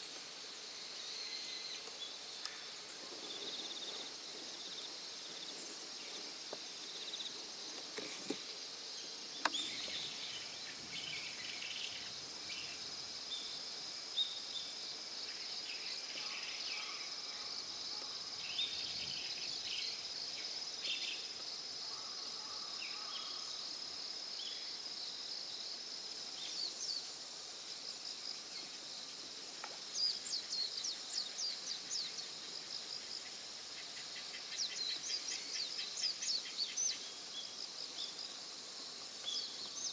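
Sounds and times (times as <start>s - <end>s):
short insect chirps: 0.0s - 23.7s.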